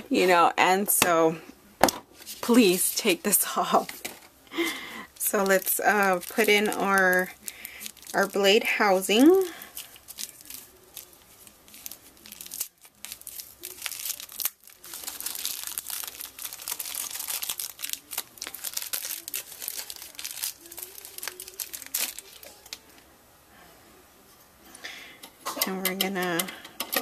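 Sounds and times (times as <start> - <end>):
packaging crinkling and rustling: 3.6 - 22.9.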